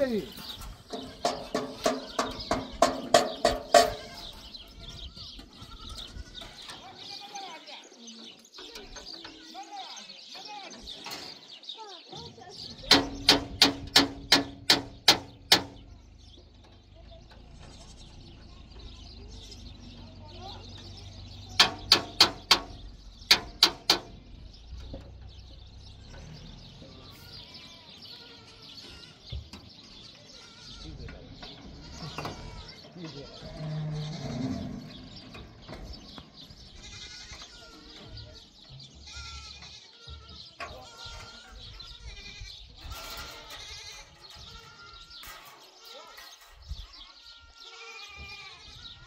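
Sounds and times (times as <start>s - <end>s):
goats bleating: 0.1s - 7.7s, 26.9s - 35.2s, 36.5s - 49.0s.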